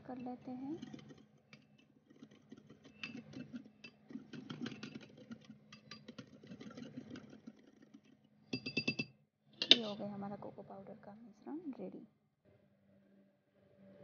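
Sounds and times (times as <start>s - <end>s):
whisk scratching in glass bowl: 0.0s - 8.3s.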